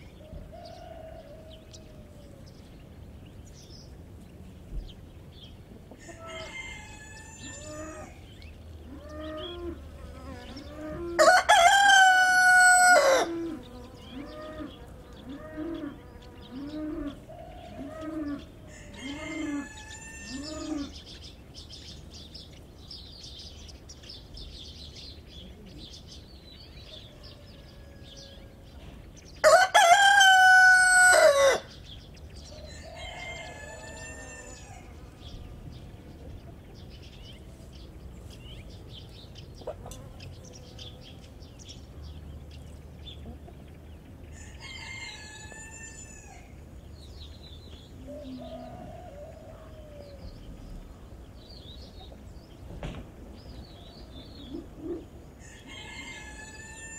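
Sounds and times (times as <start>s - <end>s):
roosters crowing: 0.2s - 2.9s, 5.8s - 22.4s, 26.7s - 37.8s, 43.0s - 52.0s, 53.4s - 56.9s.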